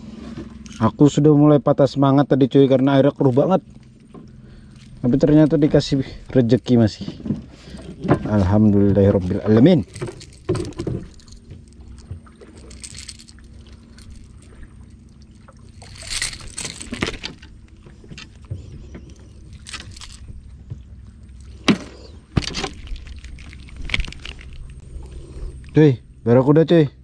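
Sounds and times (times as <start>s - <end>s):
faint low hum: 0.0s - 27.0s
fish handling rustles and knocks: 3.2s - 25.7s.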